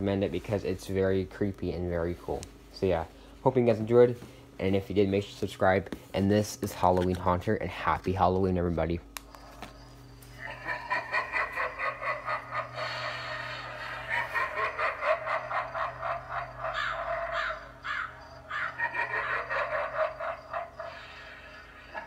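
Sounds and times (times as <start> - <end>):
steady low hum: 0.0 - 22.0
recorded cackling evil laugh: 10.4 - 22.0.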